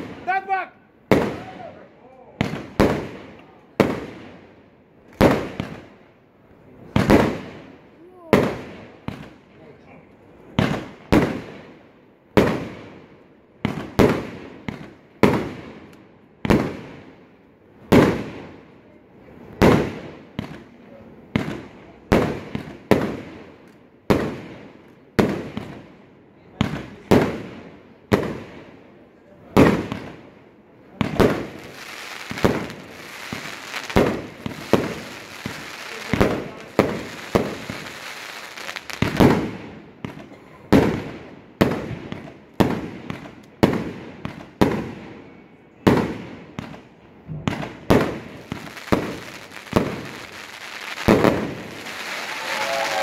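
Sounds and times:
fireworks bangs: 0.0 - 6.0, 6.8 - 9.4, 10.5 - 17.2, 17.8 - 18.6, 19.3 - 25.9, 26.6 - 28.8, 29.5 - 30.3, 30.9 - 45.1, 45.8 - 53.0
firework crackling hiss: 31.1 - 39.7, 48.0 - 53.0.

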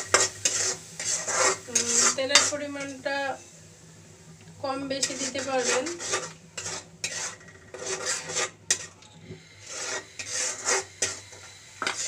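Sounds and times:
spatula scraping metal pan: 0.0 - 3.0, 5.0 - 9.0, 9.6 - 12.0.

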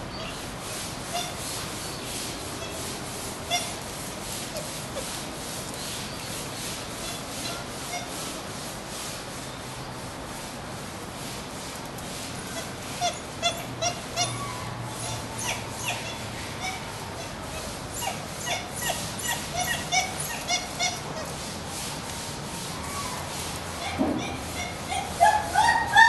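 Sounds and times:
wild dogs whining: 12.6 - 21.4.

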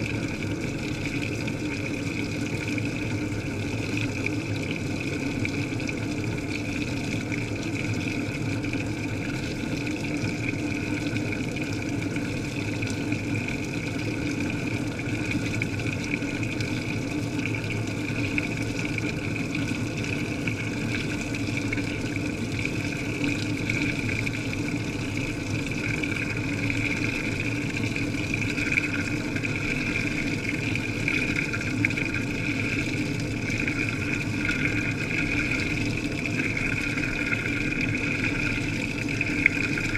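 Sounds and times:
water rushing and splashing: 17.7 - 39.9.

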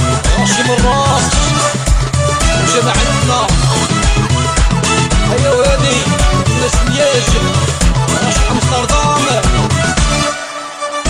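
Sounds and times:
steady bass beat: 0.0 - 10.3
ornamented melody line: 0.0 - 11.0.

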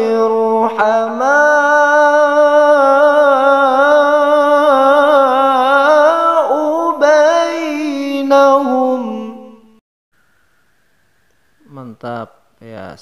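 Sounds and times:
man chanting melodically with echo: 0.0 - 9.8, 11.6 - 13.0.

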